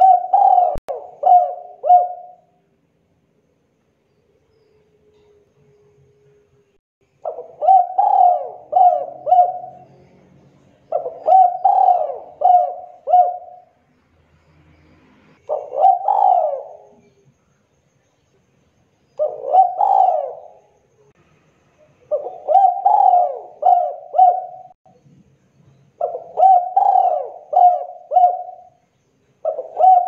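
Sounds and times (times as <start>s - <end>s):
dove cooing: 0.0s - 2.6s, 7.2s - 10.0s, 10.8s - 13.8s, 15.4s - 17.2s, 19.2s - 20.7s, 22.1s - 24.8s, 26.0s - 28.8s, 29.4s - 30.0s.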